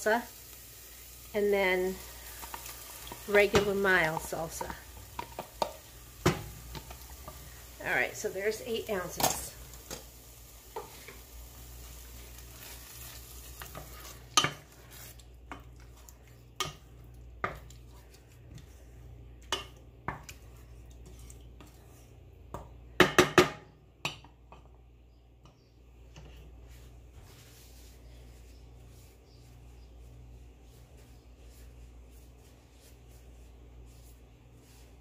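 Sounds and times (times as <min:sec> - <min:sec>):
salsa sizzling in a saucepan: 0:00.0 - 0:22.4, 0:26.5 - 0:35.0
wooden spoon knocking on pan: 0:02.4 - 0:07.4, 0:22.5 - 0:24.7.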